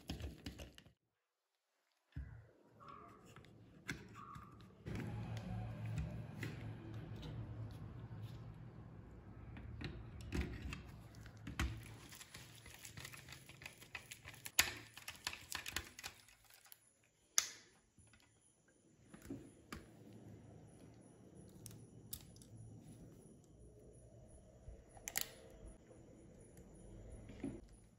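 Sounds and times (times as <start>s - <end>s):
plastic toy car parts clicking: 10.6s - 16.8s.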